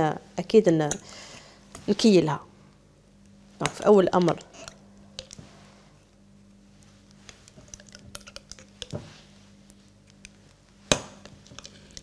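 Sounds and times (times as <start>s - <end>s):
spoon scraping a jar: 4.4s - 4.8s.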